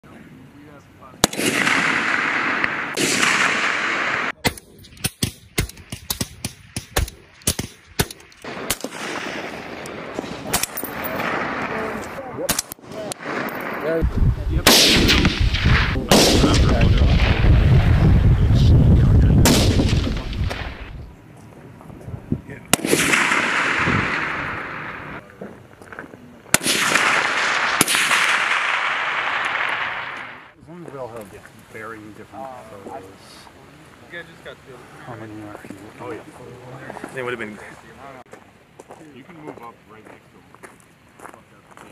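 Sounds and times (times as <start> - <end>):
steady hiss: 0.1 - 41.9
suppressed rifle shots: 1.2 - 13.7, 14.6 - 17.4, 19.4 - 20.8, 22.7 - 25.2, 26.5 - 30.4.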